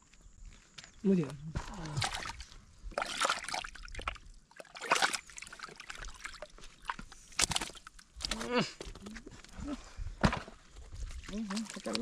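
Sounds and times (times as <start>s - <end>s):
hand splashing in muddy water: 1.7s - 7.9s
water trickling: 1.7s - 8.2s, 10.9s - 12.0s.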